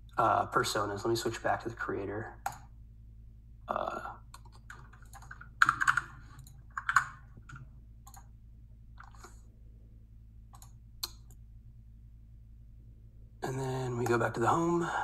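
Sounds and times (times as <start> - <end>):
computer keyboard typing: 2.4 - 2.6, 4.3 - 8.3, 9.0 - 9.3, 10.5 - 11.4.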